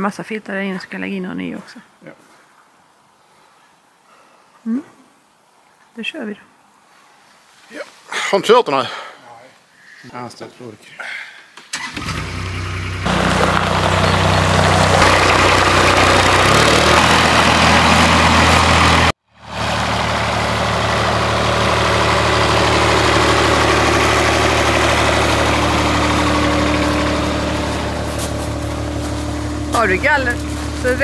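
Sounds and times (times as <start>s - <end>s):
wheel loader engine running: 11.8s - 31.0s.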